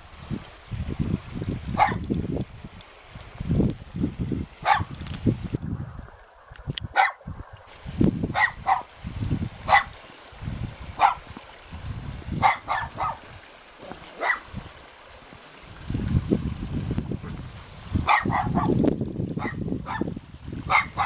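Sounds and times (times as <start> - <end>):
dog barking: 1.8 - 2.0, 4.6 - 4.9, 6.9 - 7.2, 8.3 - 8.9, 9.7 - 10.0, 11.0 - 11.3, 12.4 - 13.2, 14.2 - 14.5, 18.0 - 18.8, 19.4 - 20.1, 20.7 - 21.0.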